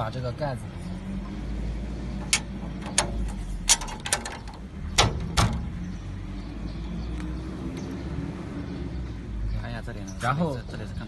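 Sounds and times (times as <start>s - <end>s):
metal cover clicking onto hinge: 2.2s - 5.8s.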